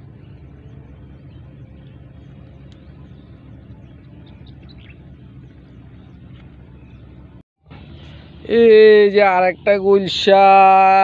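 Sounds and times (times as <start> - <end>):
low engine drone: 0.0 - 11.0
faint bird chirps: 0.2 - 8.2.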